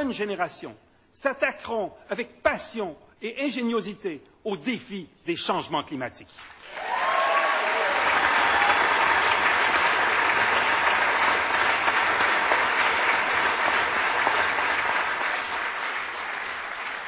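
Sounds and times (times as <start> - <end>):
audience applauding: 6.6 - 17.0.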